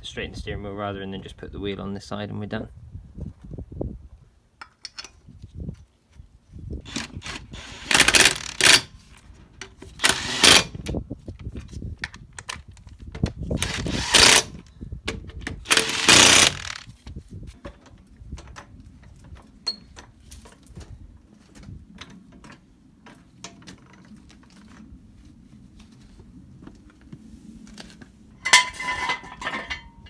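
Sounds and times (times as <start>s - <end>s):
impact wrench bursts: 6.9s - 8.9s, 10.0s - 10.7s, 13.6s - 14.6s, 15.7s - 16.9s.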